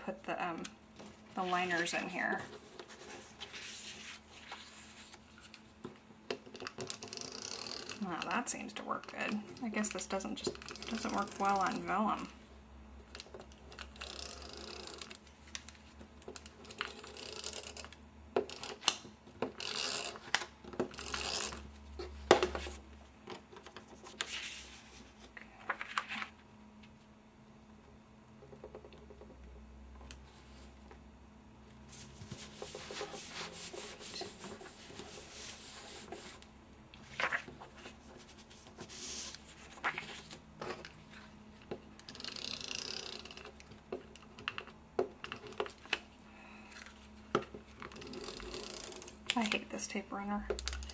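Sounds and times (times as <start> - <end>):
paper and card being handled: 1.4 - 5.6, 23.7 - 26.3, 31.9 - 36.4, 37.0 - 41.3
tape runner scratching across paper: 6.9 - 8.3.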